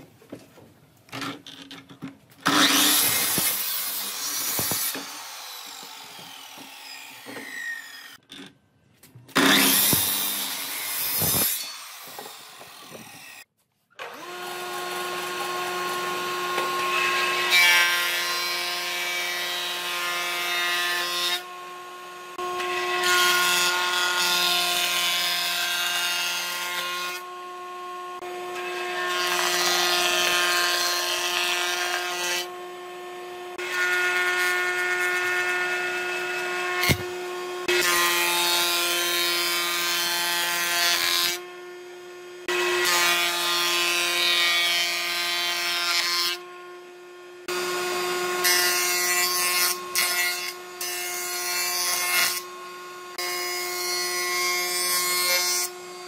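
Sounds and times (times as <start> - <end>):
planer cutting board: 2.4 - 8.2, 9.3 - 13.4, 14.0 - 27.3, 33.2 - 41.4.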